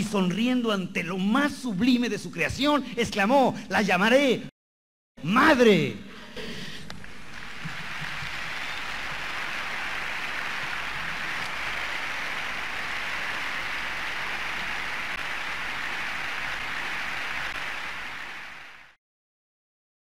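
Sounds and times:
steady static hiss: 0:07.0 - 0:18.9.

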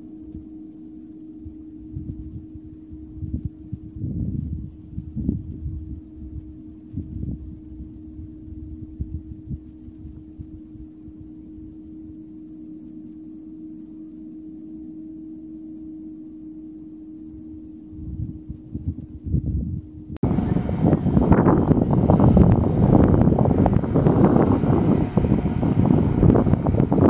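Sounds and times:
wind buffeting microphone: 0:01.4 - 0:12.2, 0:17.9 - 0:27.0
distant combine harvester hum: 0:18.5 - 0:27.0.

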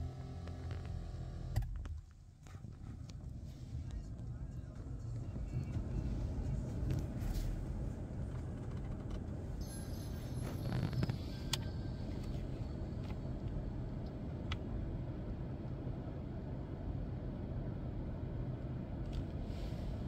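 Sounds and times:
low rumble inside car: 0:00.0 - 0:20.0.

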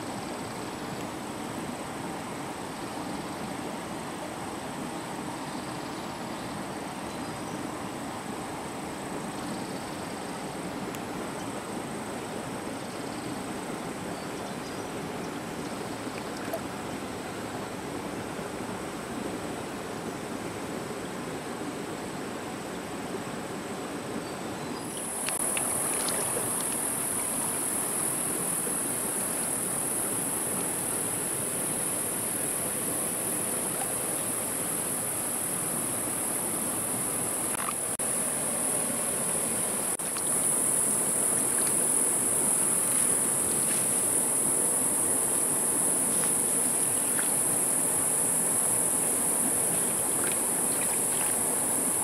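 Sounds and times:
stream running among stones: 0:15.4 - 0:17.2, 0:24.8 - 0:52.0
high-pitched insect chorus: 0:24.7 - 0:52.0.

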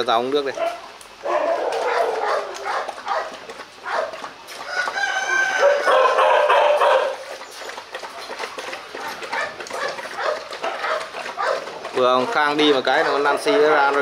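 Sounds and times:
dogs lapping water from bowl: 0:00.0 - 0:14.0
rooster crowing: 0:04.6 - 0:07.2.

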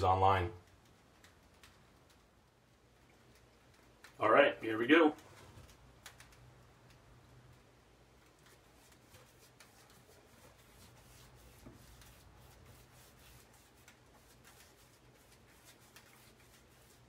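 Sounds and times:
paintbrush scratching on fiberglass: 0:08.4 - 0:17.0.

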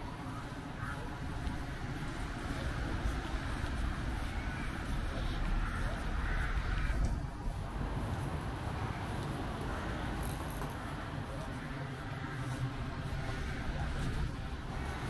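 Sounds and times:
bus engine: 0:00.0 - 0:15.0
faint voices: 0:00.0 - 0:15.0
road traffic rumble: 0:00.0 - 0:15.0.

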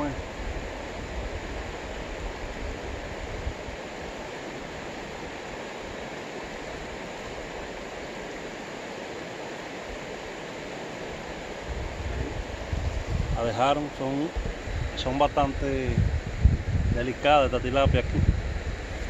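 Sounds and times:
river flowing over stones: 0:00.0 - 0:15.2.

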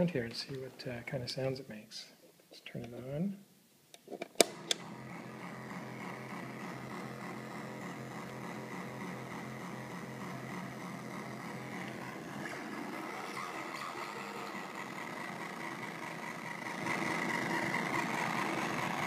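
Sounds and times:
faint high whine and hiss: 0:00.0 - 0:05.2
low electric buzz: 0:04.5 - 0:19.0.

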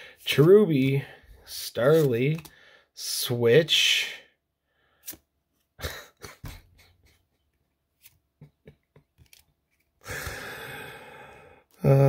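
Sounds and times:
cards snapping: 0:01.9 - 0:02.5, 0:09.1 - 0:09.9
cards clicking and tapping: 0:01.9 - 0:02.6, 0:08.0 - 0:09.9.

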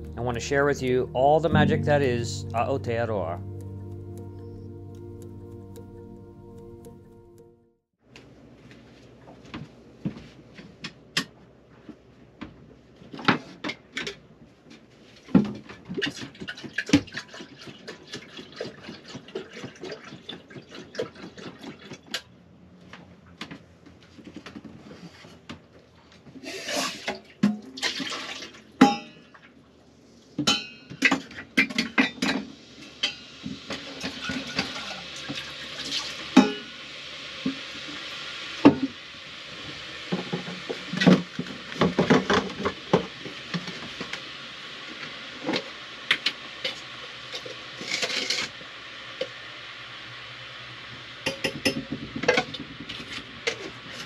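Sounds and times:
water pouring: 0:16.0 - 0:22.1, 0:26.7 - 0:28.7, 0:33.8 - 0:36.8
cups and pots clinking: 0:35.9 - 0:36.7.

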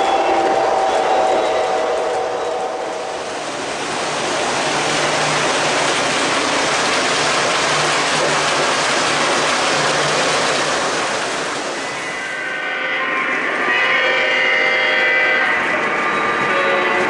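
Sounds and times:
model train wheels rushing: 0:00.0 - 0:12.8.

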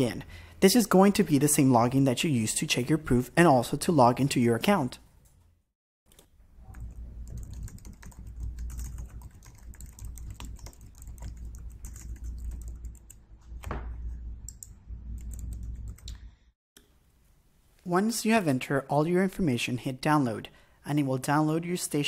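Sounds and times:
typing on a keyboard: 0:06.1 - 0:13.2
low steady hum: 0:06.4 - 0:18.1.

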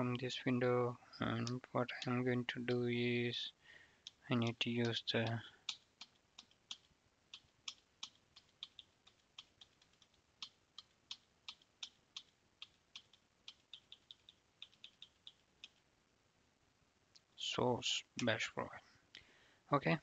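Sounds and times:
computer keyboard typing: 0:04.0 - 0:15.8.

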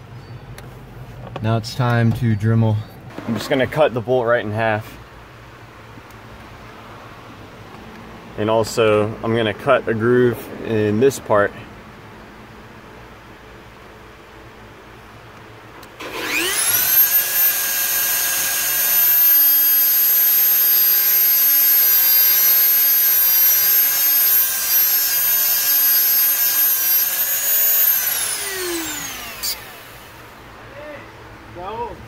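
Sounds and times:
rotary tool cutting steel: 0:16.0 - 0:30.3.

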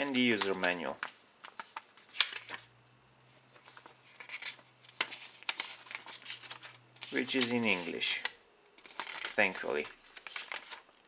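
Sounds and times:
paper crinkling: 0:00.0 - 0:02.7, 0:03.4 - 0:11.0
paper pages rustling: 0:00.0 - 0:02.7, 0:03.4 - 0:11.0.

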